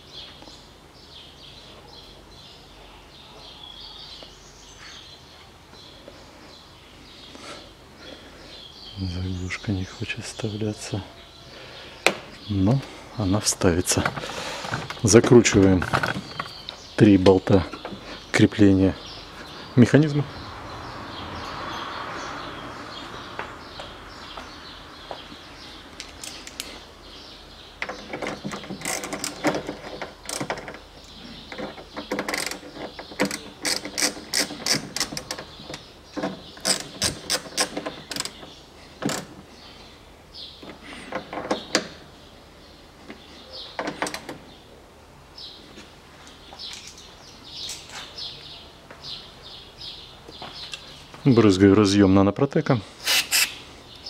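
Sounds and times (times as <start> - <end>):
hand ratchet clicking: 32.1 - 35.4.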